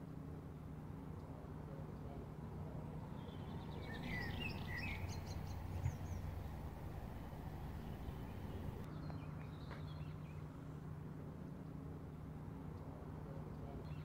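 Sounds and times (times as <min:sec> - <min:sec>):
steady low hum: 0:00.0 - 0:09.1
birds chirping: 0:03.0 - 0:10.4.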